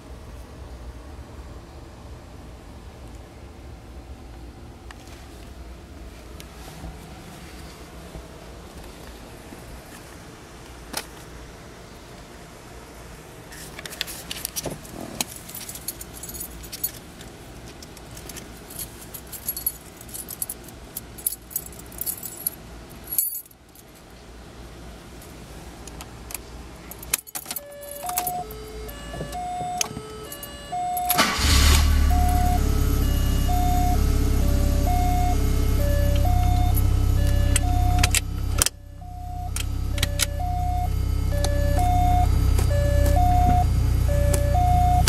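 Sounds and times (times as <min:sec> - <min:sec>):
keys jangling: 0:15.2 - 0:17.0, 0:18.1 - 0:23.5, 0:26.9 - 0:28.5
simple repeating tune: 0:27.6 - 0:45.0
car engine idling: 0:30.2 - 0:45.0.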